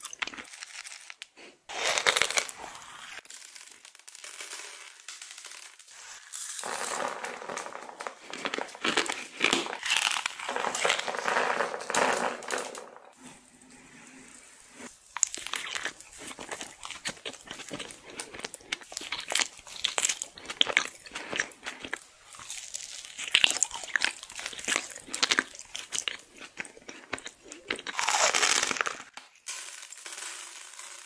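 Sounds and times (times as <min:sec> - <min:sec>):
wet chewing and lip sounds: 0:15.1 - 0:28.9.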